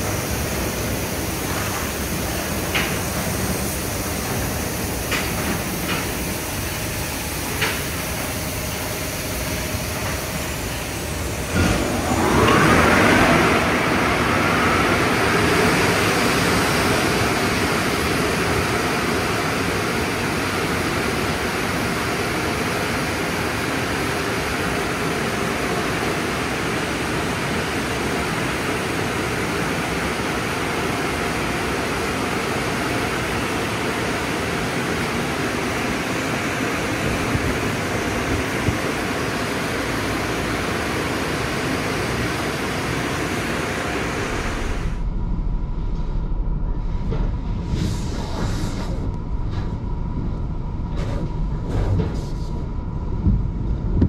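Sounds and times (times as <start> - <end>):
electric blowers rushing air: 0.0 - 31.0.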